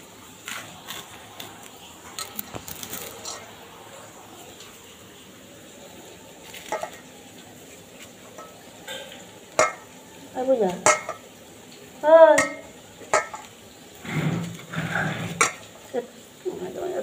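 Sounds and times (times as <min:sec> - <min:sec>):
clinks against steel bowl: 0:08.3 - 0:09.9, 0:10.7 - 0:11.3, 0:12.4 - 0:13.5, 0:15.3 - 0:15.9.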